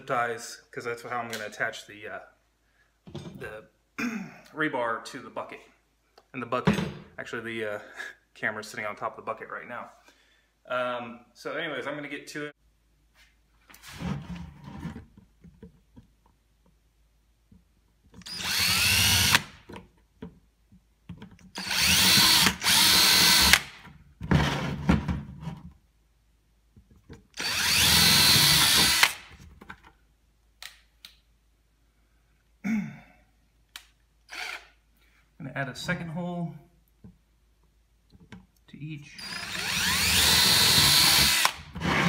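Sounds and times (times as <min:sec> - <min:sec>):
power drill boring plastic: 0:18.2 - 0:19.5, 0:21.6 - 0:23.7, 0:27.4 - 0:29.2, 0:34.3 - 0:34.7, 0:39.2 - 0:42.0.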